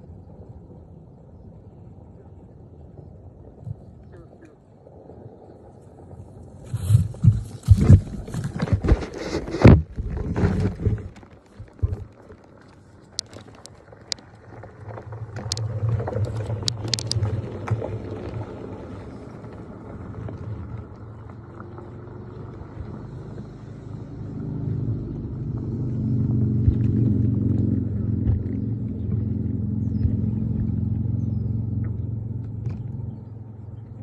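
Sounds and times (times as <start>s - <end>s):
fabric rubbing over microphone: 6.6s - 11.2s.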